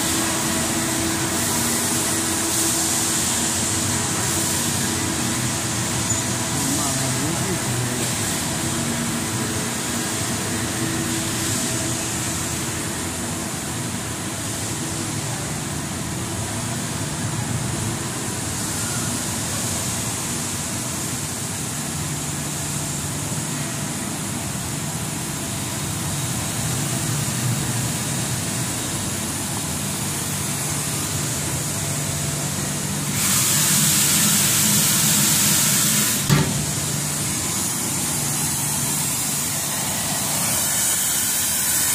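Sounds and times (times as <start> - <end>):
loud hiss: 0.0 - 16.2, 16.8 - 41.9
sharp knock: 36.3 - 36.7.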